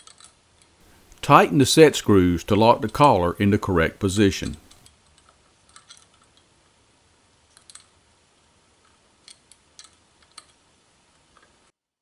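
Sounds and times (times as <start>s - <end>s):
faint metallic clicks of set screws: 8.8s - 10.6s.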